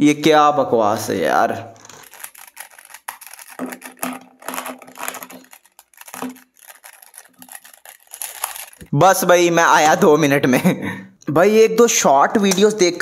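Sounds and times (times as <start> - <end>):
plastic puzzle cube clicking: 1.8 - 8.9.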